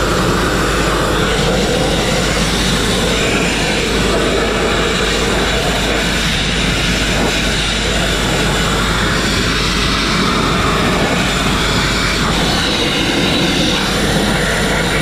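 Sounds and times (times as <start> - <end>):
grit blasting on steel: 0.0 - 15.0.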